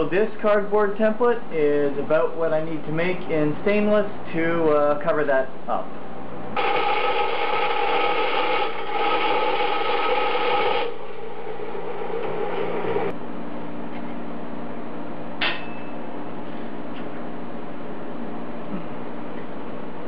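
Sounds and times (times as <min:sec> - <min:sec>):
low hum: 0:05.6 - 0:20.0
bandsaw cutting metal: 0:06.6 - 0:11.0.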